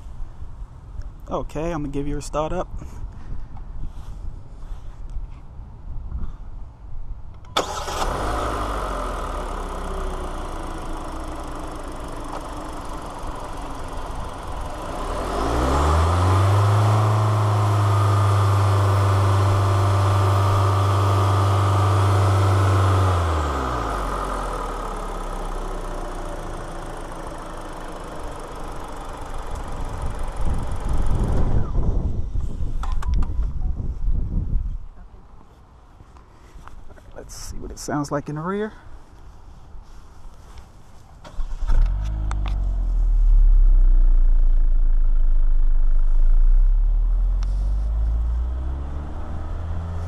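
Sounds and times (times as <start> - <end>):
car engine starting and revving: 7.5 - 32.0, 41.2 - 50.0.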